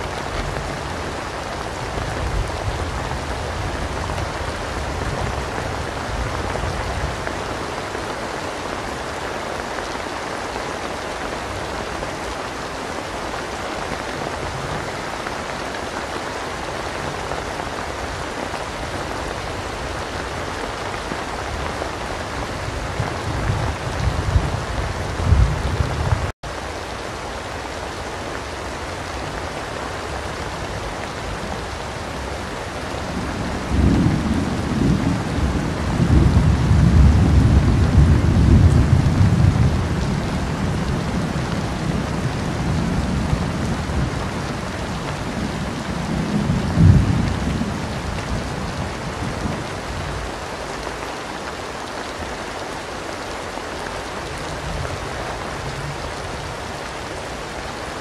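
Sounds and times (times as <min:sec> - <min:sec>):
steady rain: 0:00.0 - 0:58.0
rolling thunder: 0:22.6 - 0:26.3, 0:33.4 - 0:44.4.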